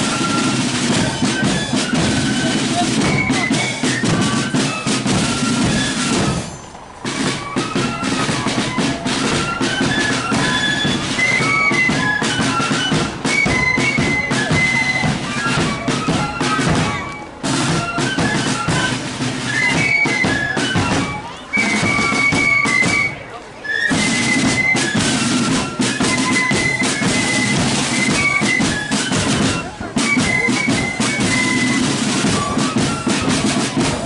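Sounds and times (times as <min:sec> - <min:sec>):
flutes playing high melody: 0:00.0 - 0:34.0
rattling side drums: 0:00.0 - 0:34.0.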